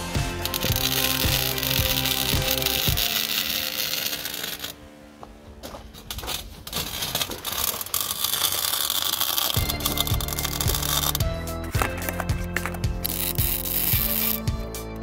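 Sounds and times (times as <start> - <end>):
electric arc welding crackling: 0.0 - 4.8, 5.9 - 12.1, 12.9 - 14.8
background music: 0.0 - 5.7, 9.5 - 15.0
rustling: 5.4 - 14.4.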